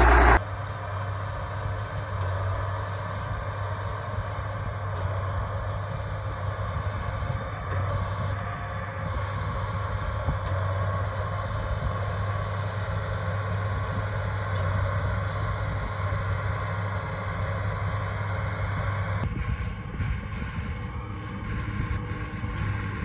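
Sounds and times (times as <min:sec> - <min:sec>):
tractor diesel engine under load: 0:00.0 - 0:00.4.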